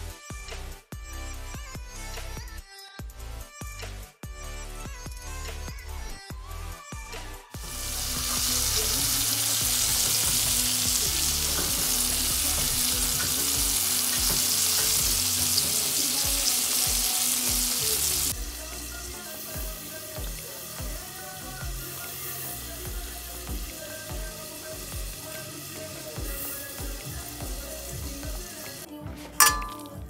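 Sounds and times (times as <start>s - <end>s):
chicken sizzling in hot oil: 7.6s - 30.0s.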